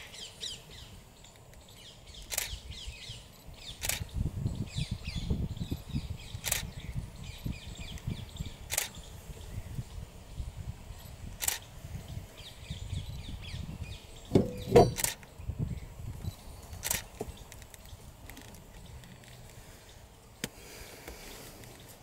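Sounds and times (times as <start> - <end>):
small birds chirping: 0.0 - 22.0
sharp clicks: 2.2 - 2.6, 3.8 - 4.1, 6.4 - 6.7, 8.7 - 9.0, 16.8 - 18.5
knocks: 14.3 - 15.2.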